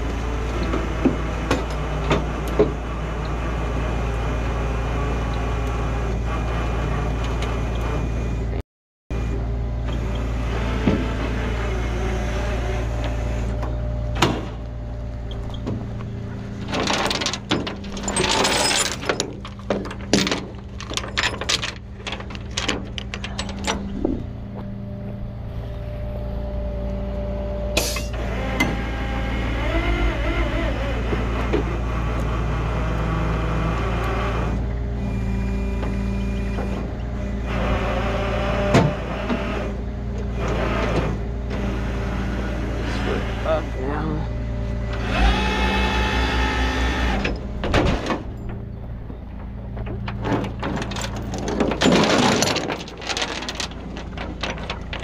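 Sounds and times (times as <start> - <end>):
rustling and clattering: 15.2 - 24.8, 47.2 - 55.0.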